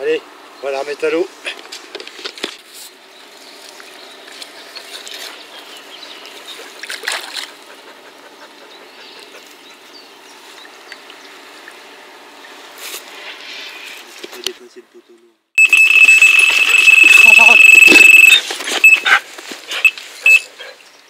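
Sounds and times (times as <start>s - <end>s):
water sloshing and trickling: 6.7s - 7.6s.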